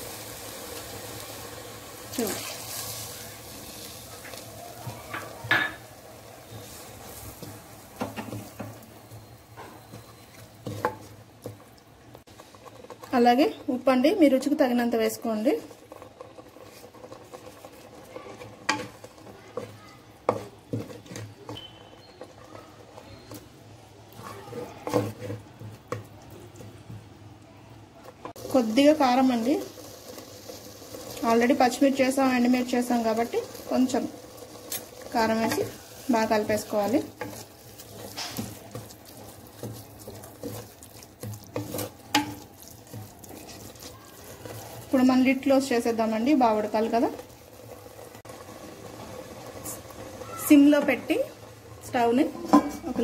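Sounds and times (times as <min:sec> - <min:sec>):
spatula scraping clay pot: 0:15.6 - 0:23.5, 0:24.1 - 0:25.9, 0:36.4 - 0:44.9.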